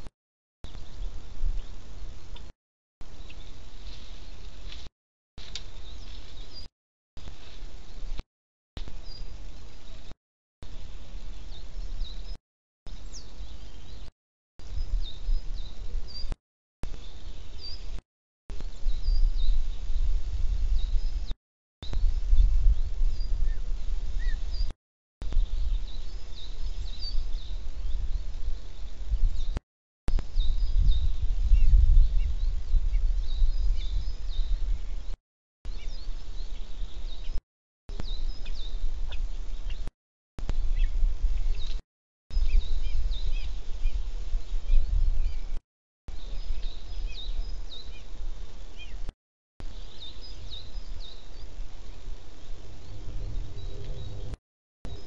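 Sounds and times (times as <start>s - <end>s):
wind rumble on microphone: 0.0s - 4.9s, 8.8s - 55.0s
songbirds chirping: 0.0s - 8.2s, 8.8s - 18.0s, 18.6s - 55.0s
low rumble: 52.4s - 55.0s.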